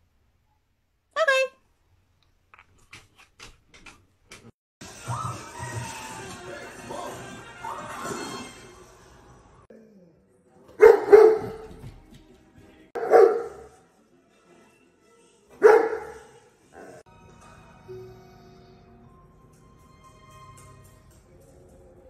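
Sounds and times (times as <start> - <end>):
dog barking: 10.8 - 11.8, 13.0 - 13.8, 15.6 - 17.0.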